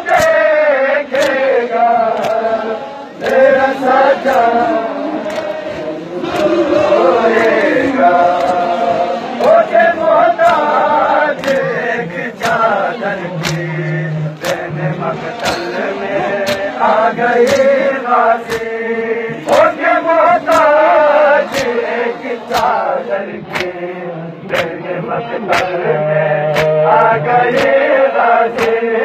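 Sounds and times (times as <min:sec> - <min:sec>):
crowd of men chanting: 0:00.0 - 0:29.0
chest-beating strikes: 0:13.4 - 0:16.7.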